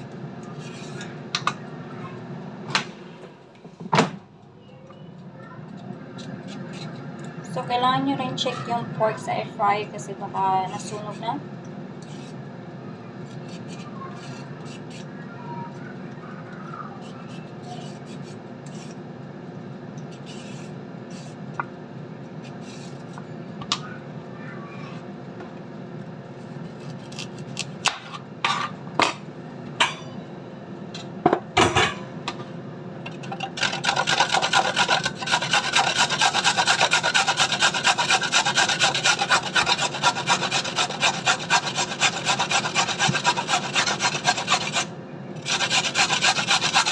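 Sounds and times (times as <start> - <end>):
carrot rasping on metal grater: 13.4 - 15.1, 17.0 - 18.9, 33.4 - 46.9.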